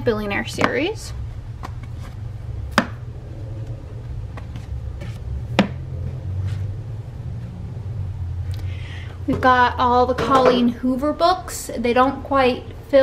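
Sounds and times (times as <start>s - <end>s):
books knocking on wooden shelf: 2.8s - 3.0s, 4.4s - 5.8s.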